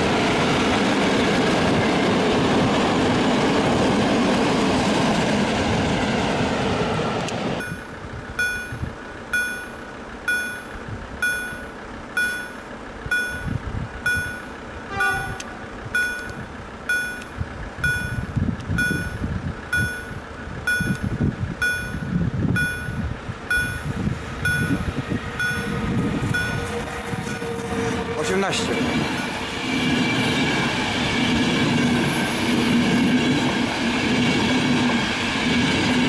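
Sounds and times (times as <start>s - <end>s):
train rumbling: 0.0s - 36.0s
level crossing signal beeping: 7.6s - 27.4s.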